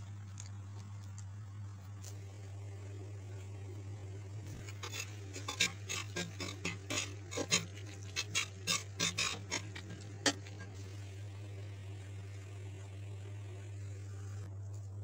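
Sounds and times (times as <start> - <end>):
low hum: 0.0 - 15.0
spoon scraping a pan: 4.5 - 10.8.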